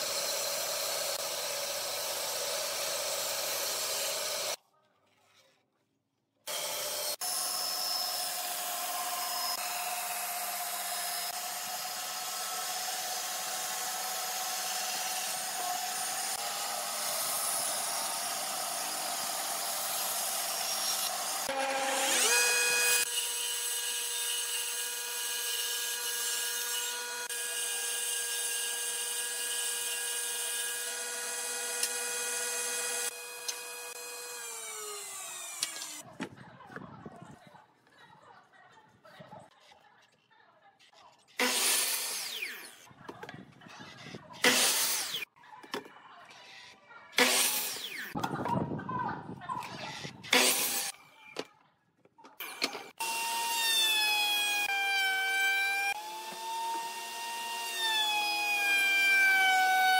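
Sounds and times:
bandsaw blade rasping through wood: 0.0 - 4.6, 6.5 - 36.1, 41.4 - 42.9, 44.4 - 45.3, 47.2 - 48.2, 49.8 - 51.0, 52.4 - 59.9
bandsaw motor whine: 0.0 - 4.6, 6.5 - 36.0, 52.4 - 59.9.

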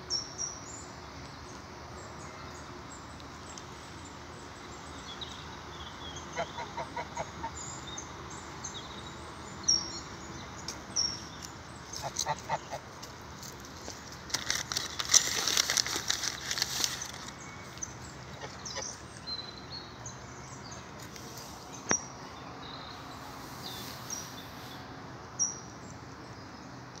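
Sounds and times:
small birds chirping: 0.0 - 27.0
rustling: 13.4 - 17.4.

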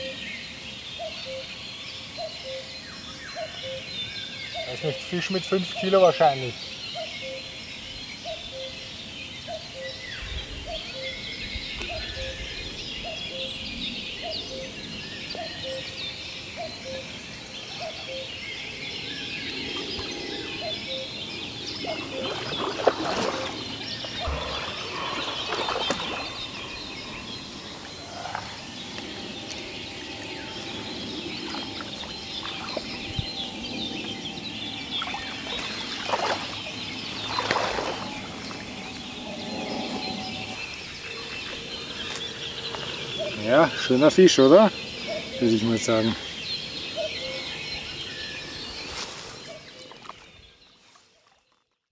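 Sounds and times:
birds singing: 0.0 - 51.8
fish splashing in water: 21.9 - 27.0, 35.0 - 38.9.

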